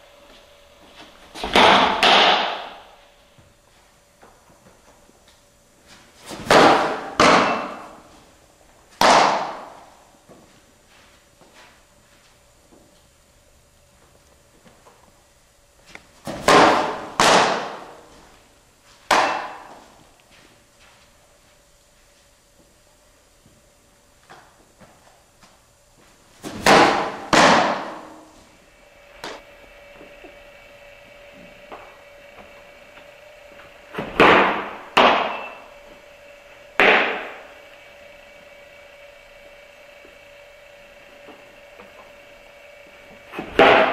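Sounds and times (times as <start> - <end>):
softballs hitting target: 9.0 - 9.8, 16.3 - 18.0, 33.9 - 35.5, 36.8 - 37.4.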